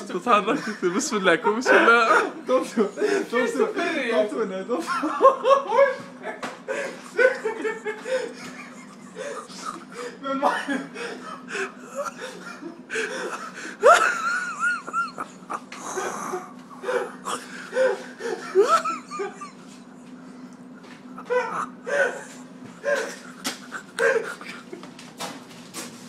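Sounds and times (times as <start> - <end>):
laughter: 0.5 - 3.5, 4.7 - 20.1, 20.8 - 24.9
wheezy breaths: 6.7 - 7.2, 10.9 - 13.8, 15.8 - 18.6.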